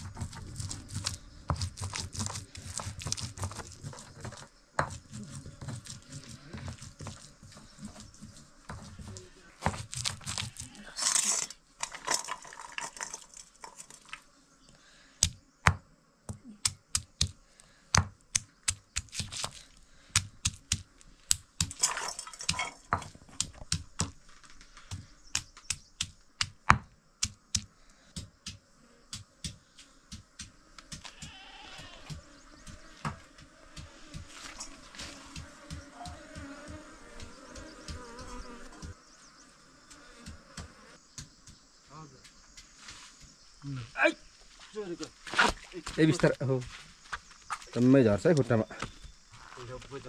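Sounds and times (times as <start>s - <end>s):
rustling: 0.0s - 14.3s, 20.9s - 25.1s.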